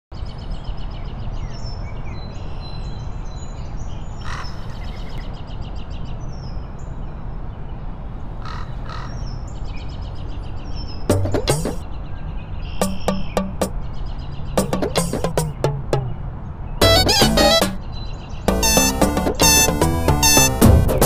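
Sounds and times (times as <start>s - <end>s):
birds chirping and trilling: 8.4s - 18.5s.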